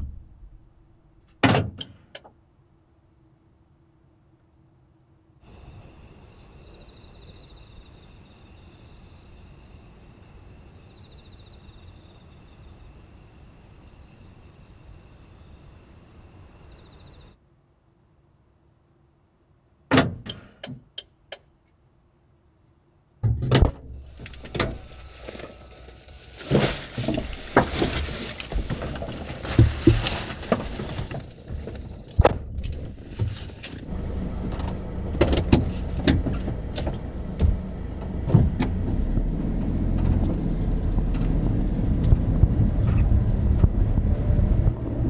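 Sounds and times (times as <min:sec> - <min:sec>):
night insects chirring: 0:00.0 - 0:20.2, 0:23.8 - 0:32.9
rustling: 0:24.0 - 0:33.9.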